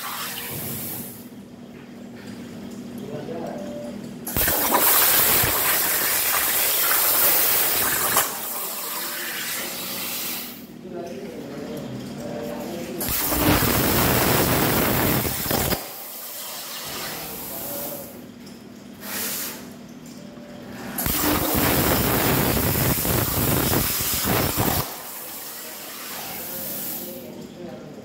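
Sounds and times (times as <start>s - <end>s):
plasma cutter arc hissing: 4.3s - 10.6s, 13.0s - 18.1s, 19.0s - 19.7s, 21.0s - 27.2s.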